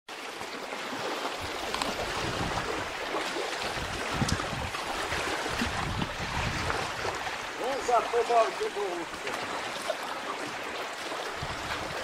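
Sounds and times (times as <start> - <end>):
lake water lapping: 0.1 - 12.0
wind buffeting microphone: 1.4 - 8.2, 10.5 - 12.0.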